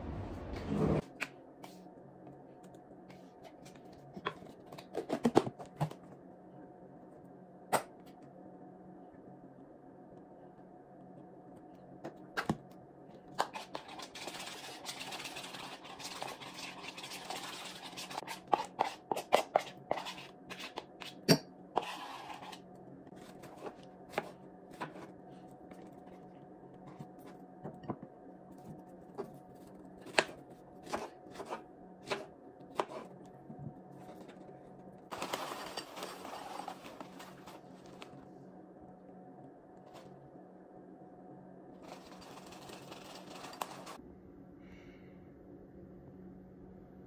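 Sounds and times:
utensils scraping and clattering: 0:35.1 - 0:37.6, 0:41.8 - 0:44.0.

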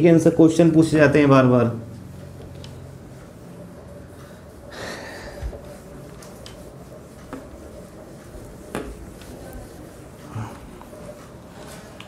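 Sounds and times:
cloth wiping whiteboard: 0:00.0 - 0:12.0.

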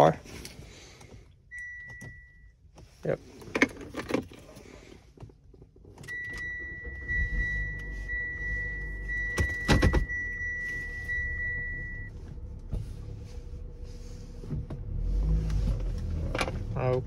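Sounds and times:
high electronic warning tone: 0:06.1 - 0:12.1
low engine rumble: 0:06.4 - 0:17.0.

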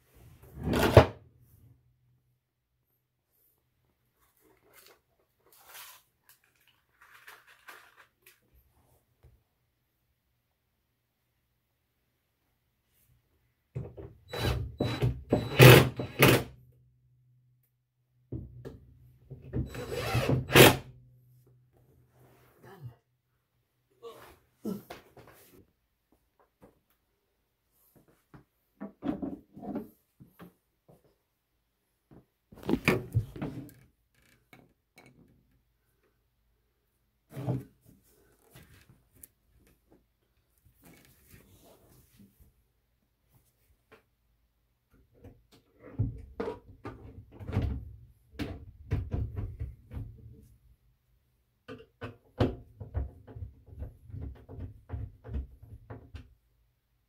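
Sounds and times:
cordless drill driving screws: 0:14.3 - 0:16.4, 0:19.7 - 0:20.8
knocks and clatter of cabinet: 0:46.0 - 0:50.2, 0:52.1 - 0:56.2.

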